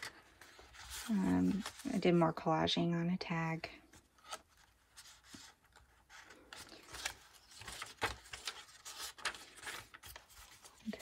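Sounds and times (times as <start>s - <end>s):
paper pages rustling: 0.0s - 2.4s, 3.8s - 11.0s.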